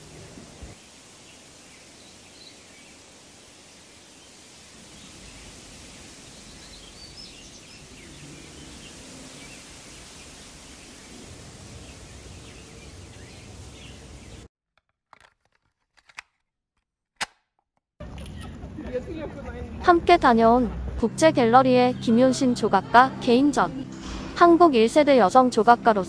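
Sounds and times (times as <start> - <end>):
steady background hiss: 0.0 - 14.5.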